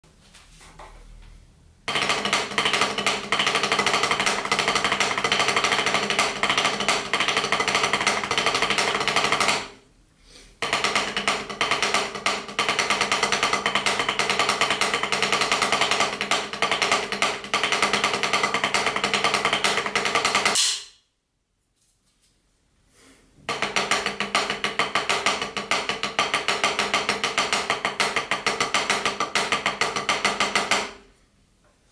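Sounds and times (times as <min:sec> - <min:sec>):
drumsticks on practice pad: 0:20.4 - 0:21.1.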